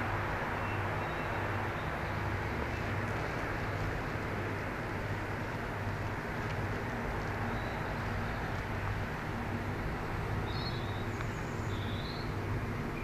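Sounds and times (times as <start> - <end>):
railway station ambience rumble and hiss: 0.0 - 13.0.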